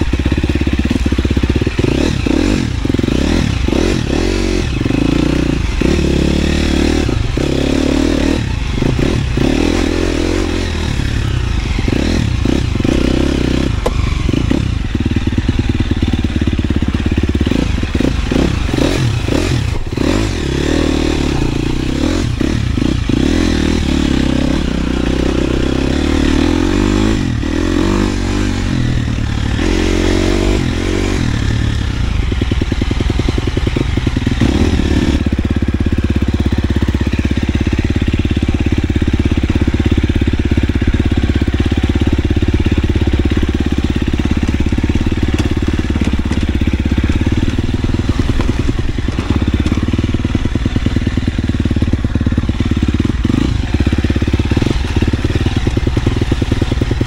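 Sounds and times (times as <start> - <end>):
dirt bike engine revving: 0.0 - 57.0
knocks and rattles over rough ground: 6.8 - 24.1, 31.4 - 57.0.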